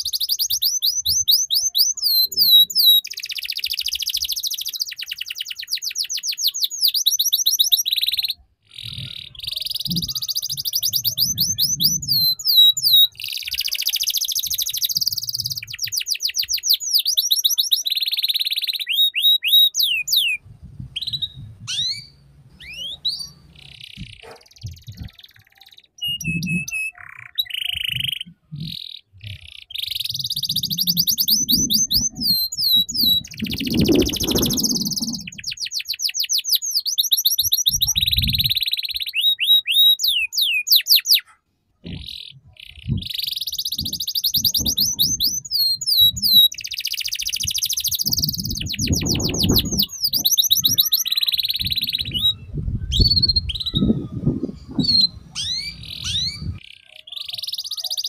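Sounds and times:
canary singing trills: 0:00.0 - 0:58.0
low rumbles: 0:52.1 - 0:56.6.

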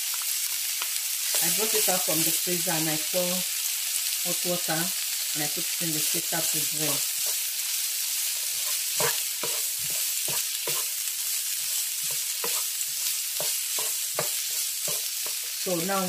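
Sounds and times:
vegetables sizzling in oil: 0:00.0 - 0:16.0
spatula scraping a pan: 0:08.2 - 0:15.6.

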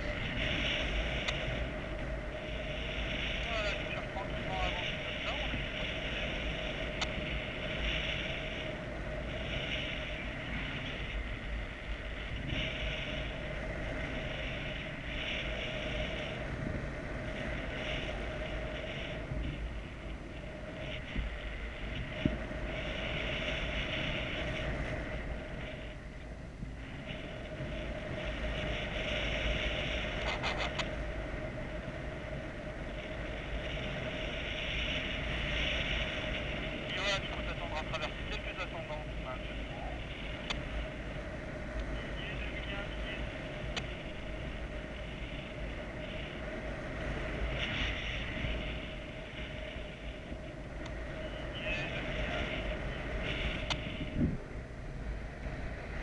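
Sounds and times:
wind buffeting microphone: 0:00.0 - 0:56.0.

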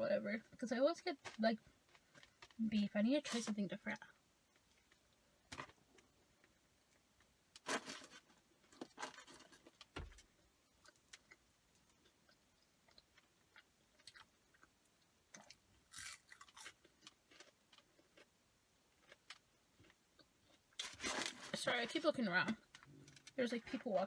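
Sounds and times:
person chewing food: 0:10.6 - 0:20.8.

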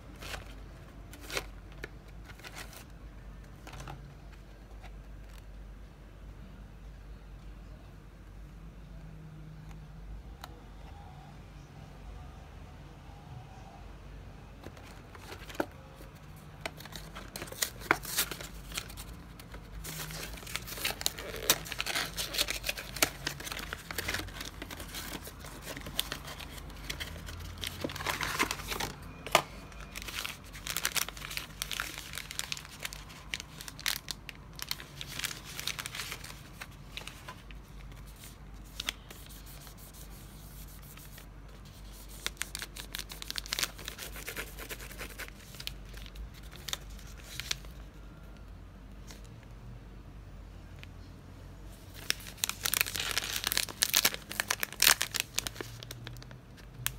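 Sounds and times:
crisp bag crinkling: 0:16.8 - 0:37.9, 0:42.2 - 0:47.8, 0:51.9 - 0:56.9.

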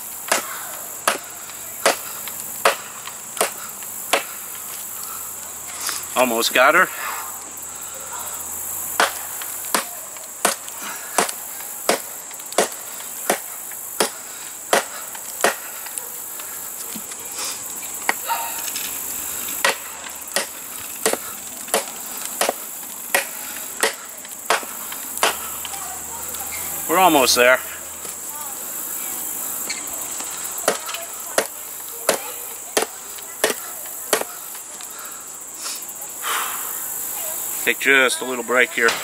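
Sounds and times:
machete chopping log: 0:00.3 - 0:04.4, 0:09.0 - 0:15.8, 0:19.6 - 0:25.5, 0:30.6 - 0:34.4.

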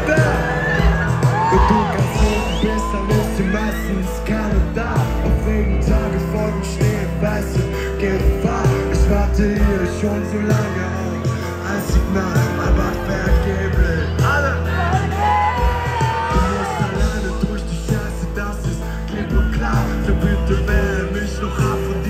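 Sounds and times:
live pop-rock band playing: 0:00.0 - 0:22.0.

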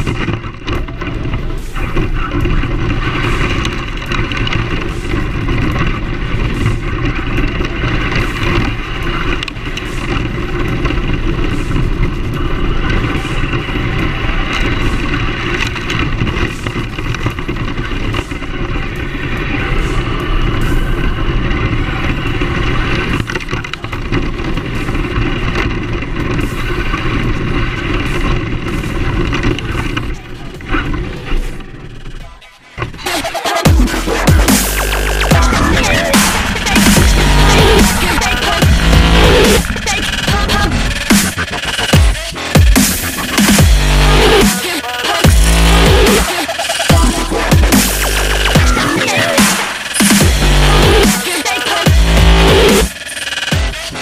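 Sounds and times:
tyre noise over asphalt and grass: 0:00.0 - 0:46.3
rc truck motor whine: 0:33.5 - 0:54.0.

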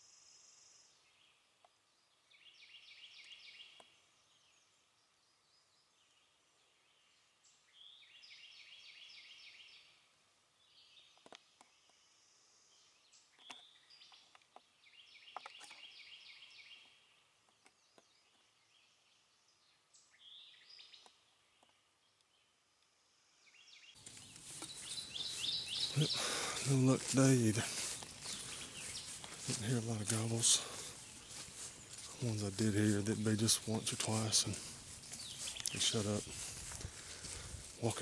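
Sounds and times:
small songbird singing: 0:00.0 - 0:10.0, 0:10.6 - 0:36.7
rustling noise: 0:24.0 - 0:38.0.

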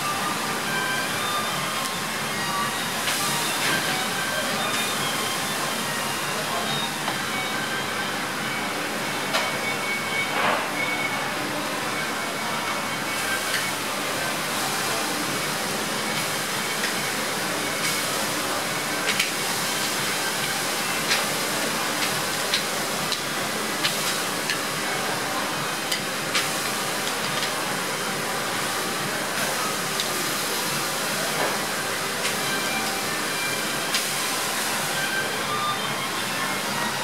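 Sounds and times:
ribs sizzling over wood fire: 0:14.4 - 0:27.9, 0:28.6 - 0:31.0, 0:31.6 - 0:34.9.

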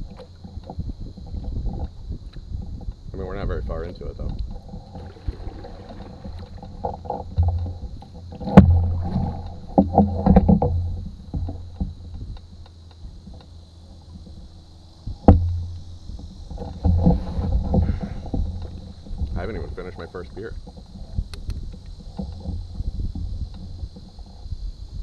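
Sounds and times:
paddle knocking canoe hull: 0:03.9 - 0:14.5, 0:15.1 - 0:24.4
paddle splashing in water: 0:04.6 - 0:11.8.

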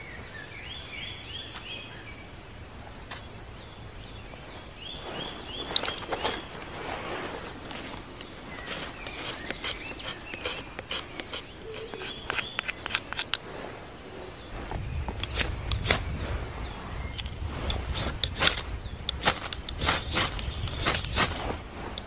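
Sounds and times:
birds chirping: 0:00.0 - 0:22.0
blade scraping bark: 0:08.4 - 0:13.4, 0:17.7 - 0:21.6.

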